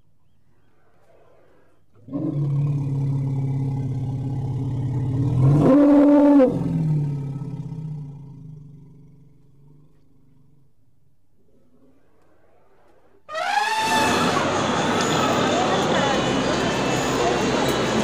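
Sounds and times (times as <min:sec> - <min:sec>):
low drawn-out mammoth call: 0:00.6 - 0:07.8, 0:11.6 - 0:15.0.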